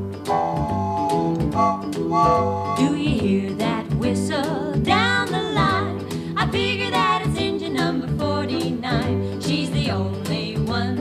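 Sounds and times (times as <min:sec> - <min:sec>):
country song: 0:00.0 - 0:11.0
guitar: 0:00.0 - 0:11.0
person singing: 0:02.6 - 0:11.0.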